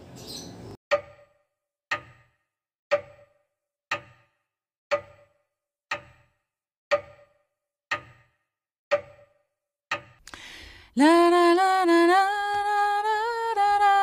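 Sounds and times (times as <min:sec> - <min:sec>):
clock ticking: 0:00.9 - 0:10.5.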